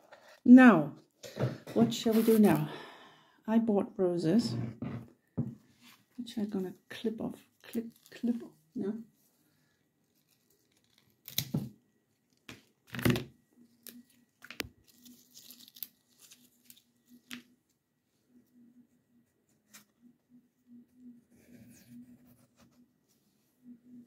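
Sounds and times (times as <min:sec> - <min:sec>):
rose stem tearing and snapping: 0:10.2 - 0:11.7, 0:13.8 - 0:17.4
leaves rustling and crackling: 0:13.9 - 0:17.4.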